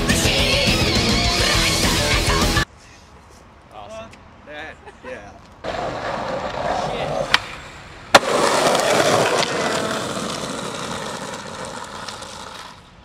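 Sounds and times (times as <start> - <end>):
skateboard clack: 5.6 - 12.9
skateboard rolling on rough surface: 5.6 - 13.0.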